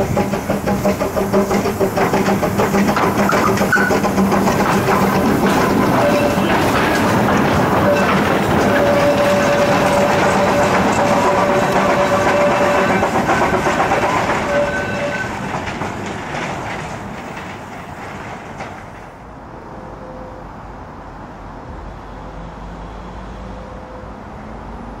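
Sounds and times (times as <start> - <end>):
train clattering over track: 0.0 - 19.6
high squeals: 2.7 - 15.4.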